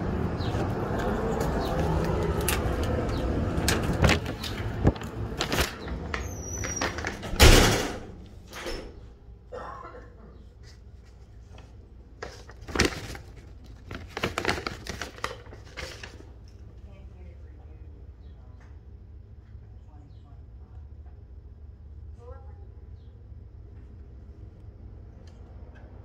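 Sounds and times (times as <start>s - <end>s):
outdoor rumble: 0.0s - 10.6s
paper rustling: 3.6s - 7.3s, 10.6s - 16.6s
glass door shutting with thud: 6.5s - 9.0s.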